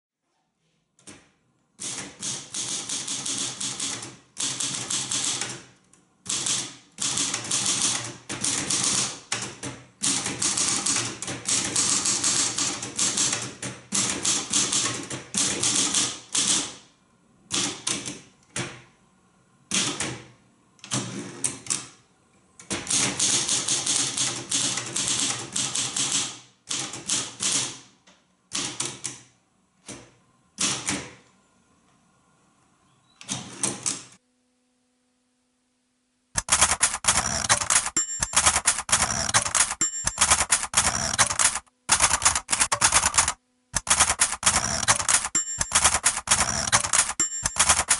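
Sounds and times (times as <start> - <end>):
manual typewriter typing: 1.8 - 5.6, 6.3 - 16.7, 36.4 - 47.9.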